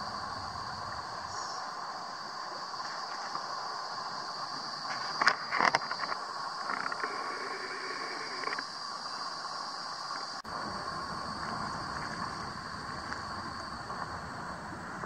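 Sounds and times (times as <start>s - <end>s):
high insect drone: 0.0s - 15.0s
shallow river current: 0.0s - 15.0s.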